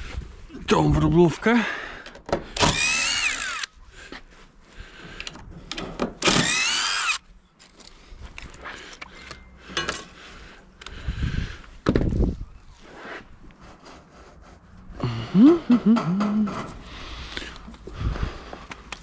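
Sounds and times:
cordless drill whining: 2.6 - 3.8, 6.2 - 7.2.

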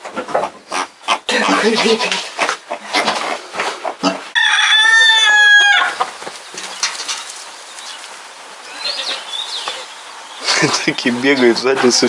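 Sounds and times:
rooster crowing: 4.3 - 6.1.

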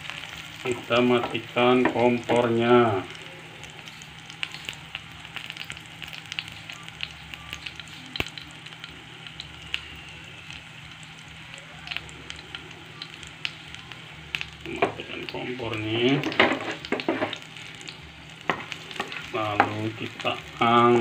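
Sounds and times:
chilies sizzling in oil: 0.0 - 21.0
oil pops and crackles: 16.2 - 19.8.

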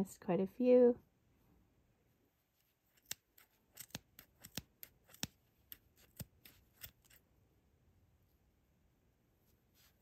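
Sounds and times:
scissors snipping yarn: 2.9 - 7.2.

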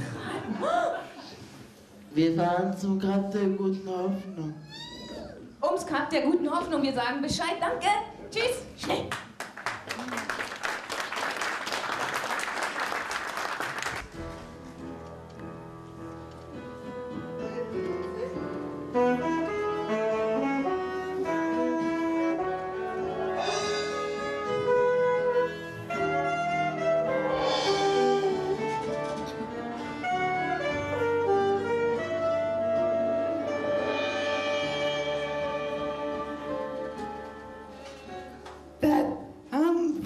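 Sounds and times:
hand clapping: 9.1 - 14.1
alto saxophone melody: 17.3 - 37.9
keyboard and drums: 27.0 - 29.1
cymbal swells: 27.2 - 28.6.

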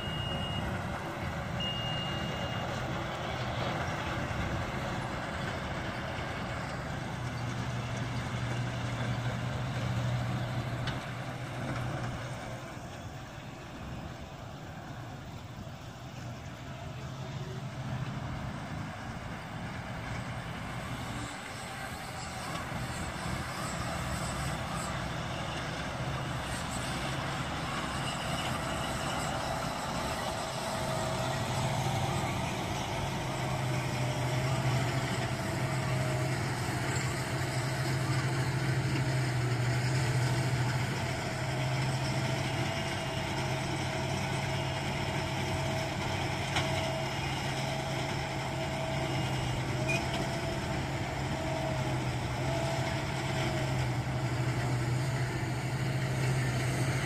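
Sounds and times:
tractor diesel engine drone: 0.0 - 57.0.

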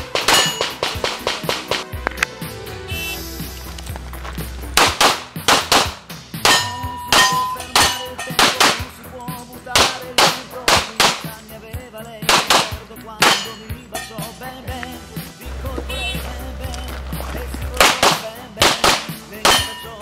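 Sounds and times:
pistol shots: 0.0 - 1.8, 4.8 - 9.0, 9.7 - 11.5, 12.2 - 13.7, 17.8 - 20.0.

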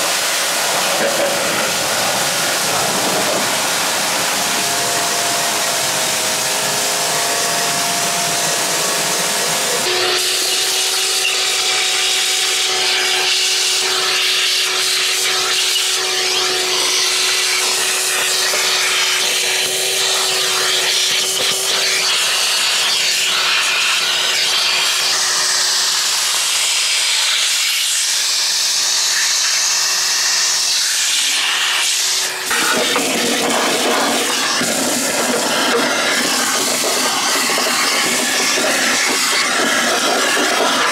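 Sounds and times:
pressure washer spraying water: 0.0 - 40.9
vacuum cleaner running: 0.0 - 40.9.

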